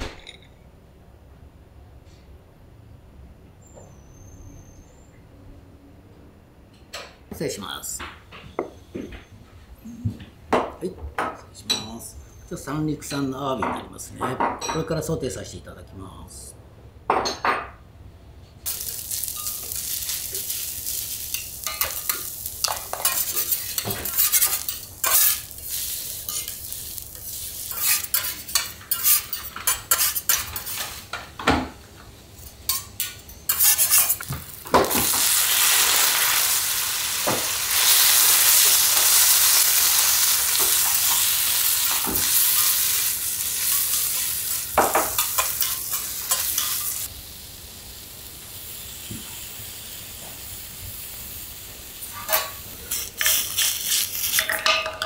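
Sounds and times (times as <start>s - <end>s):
food sizzling on a griddle: 18.7s - 31.2s, 33.5s - 54.8s
metal utensils scraping hot plate: 18.7s - 31.2s, 32.4s - 34.3s, 37.7s - 47.1s, 52.1s - 55.0s.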